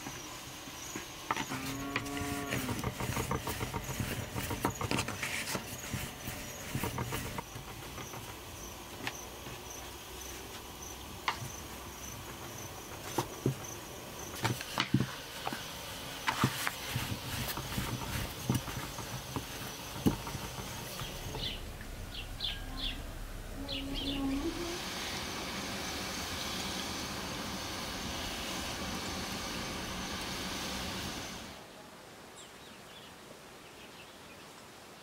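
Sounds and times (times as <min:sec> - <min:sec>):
insect chirping: 0:00.0 - 0:14.4, 0:18.0 - 0:27.0
sharp clicks and knocks: 0:01.3 - 0:09.6, 0:16.2 - 0:22.5.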